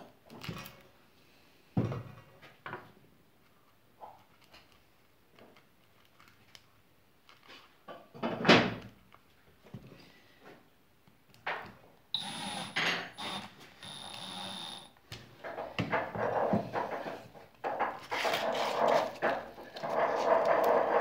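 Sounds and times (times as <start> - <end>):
cordless drill motor whine: 12.2 - 15.0.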